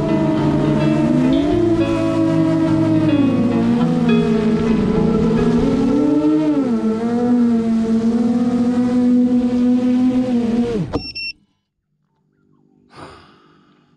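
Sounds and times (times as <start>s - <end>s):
drone motors whining: 0.0s - 11.2s
short high beep: 11.0s - 11.4s.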